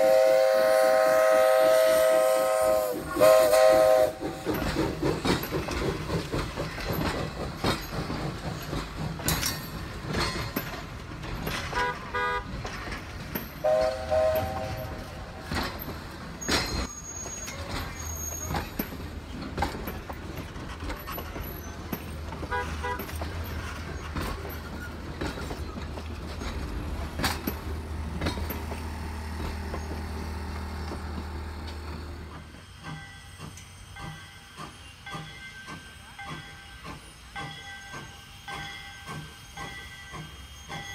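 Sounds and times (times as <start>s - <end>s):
steam whistle toots: 0.0s - 4.5s, 13.6s - 15.4s
low train rumble: 0.0s - 40.9s
train wheels clicking over rail joints: 0.0s - 40.9s.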